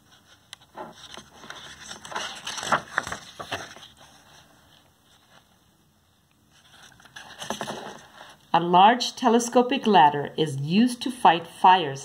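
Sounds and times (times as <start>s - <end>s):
book page turning: 0.0s - 5.6s, 6.5s - 8.4s.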